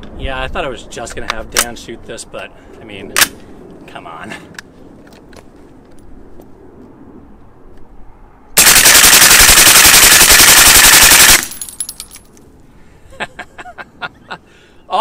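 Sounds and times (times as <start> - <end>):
suppressed automatic gunfire: 8.6 - 11.7.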